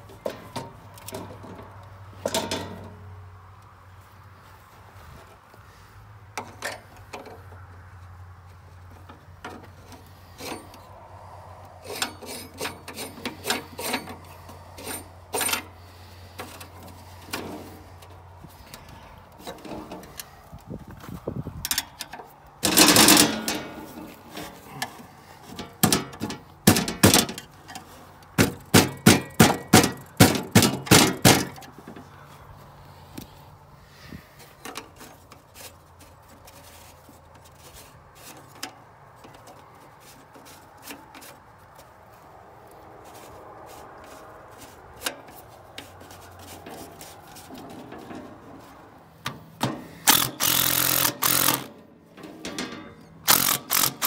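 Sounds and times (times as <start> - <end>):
clicks and knocks on metal: 0.0 - 3.0, 21.6 - 32.1, 49.2 - 54.0.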